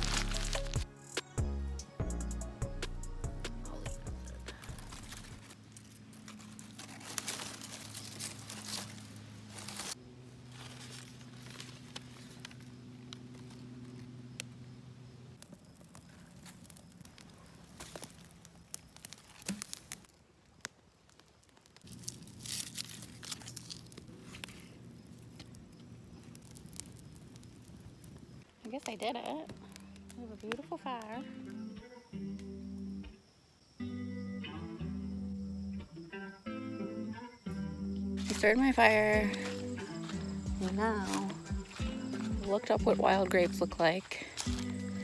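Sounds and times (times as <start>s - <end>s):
crumpling and tearing kindling: 0.0s - 0.9s, 4.4s - 14.6s, 15.3s - 31.2s, 38.2s - 42.7s, 43.5s - 45.0s.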